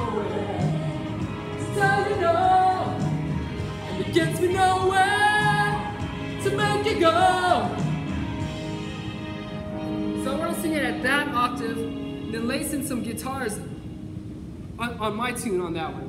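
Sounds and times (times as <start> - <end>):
person singing: 0.0 - 3.2, 3.8 - 7.9
backing music: 0.0 - 14.6.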